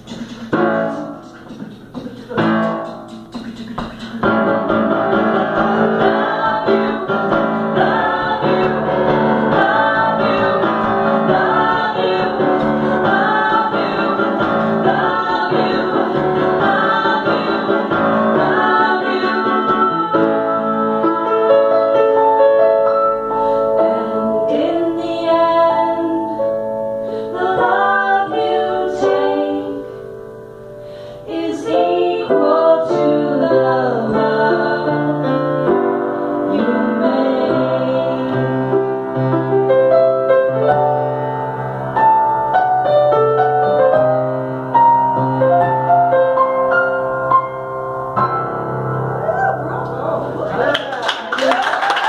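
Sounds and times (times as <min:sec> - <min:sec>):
upright piano chords: 0:00.0 - 0:52.0
woman singing into microphone: 0:23.8 - 0:26.5, 0:31.3 - 0:35.2.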